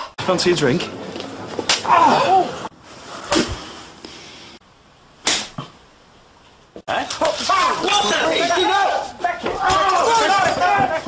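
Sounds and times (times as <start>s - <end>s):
blows landing on a person: 5.2s - 5.7s.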